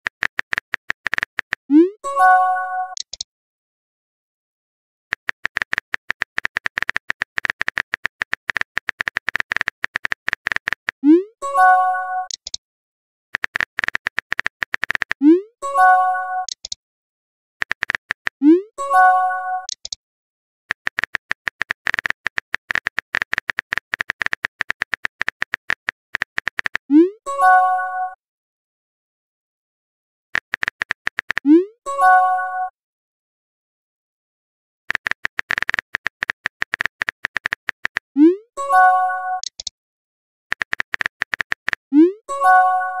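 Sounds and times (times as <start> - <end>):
keyboard key clicks: 0.0 - 1.6, 3.0 - 3.2, 5.1 - 11.0, 13.4 - 15.2, 16.5 - 16.8, 17.6 - 18.4, 20.7 - 26.8, 30.4 - 31.5, 34.9 - 38.0, 39.4 - 39.7, 40.5 - 41.8.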